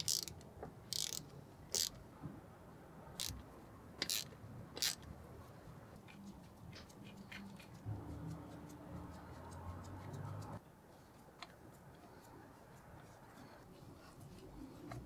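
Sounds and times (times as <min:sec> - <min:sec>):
metallic clicks of hand tools: 0:00.0 - 0:02.0, 0:03.2 - 0:03.4, 0:04.0 - 0:05.0.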